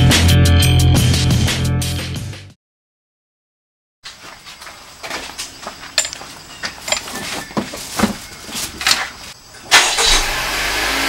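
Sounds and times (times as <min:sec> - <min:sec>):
gear being handled and packed: 0:04.1 - 0:09.4.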